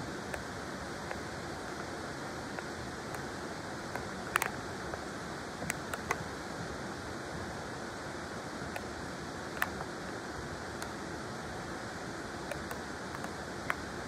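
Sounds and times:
river water flowing: 0.0s - 14.0s
sharp ticks: 0.3s - 4.6s, 5.6s - 6.3s, 12.5s - 13.9s.

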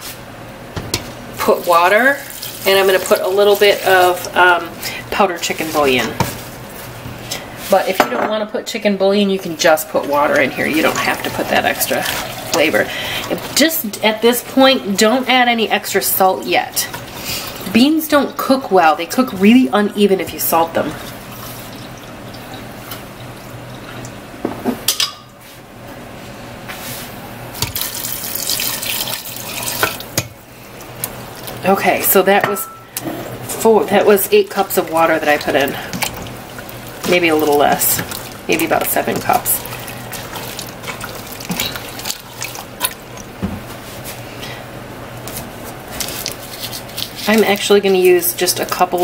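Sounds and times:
liquid sloshing: 1.4s - 7.8s, 9.4s - 13.8s, 27.6s - 32.3s, 32.9s - 44.2s, 45.3s - 49.0s
water pouring into metal pot: 1.6s - 4.3s, 27.7s - 30.2s, 34.6s - 43.0s.

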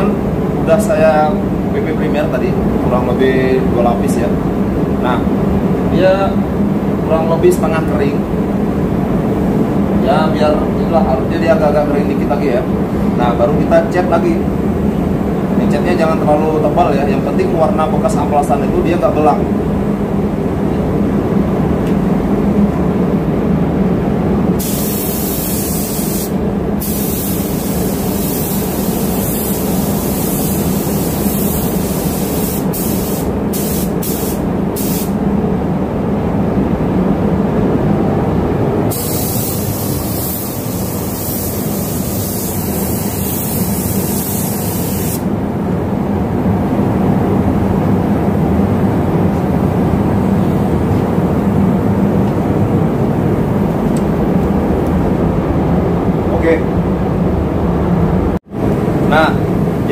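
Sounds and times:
spray gun hissing: 24.6s - 35.2s, 38.9s - 45.3s.

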